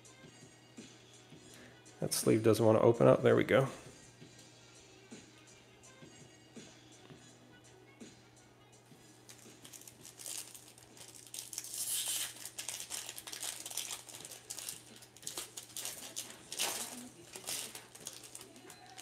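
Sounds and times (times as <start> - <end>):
foil wrapper tearing and crinkling: 9.3 - 19.0.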